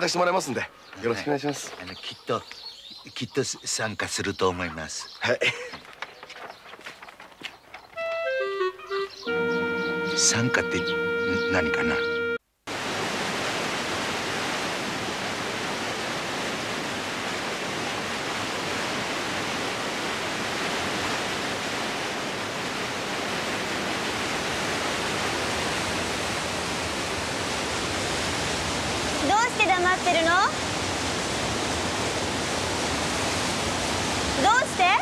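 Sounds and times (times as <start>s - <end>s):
stream rushing over rapids: 12.7s - 35.0s.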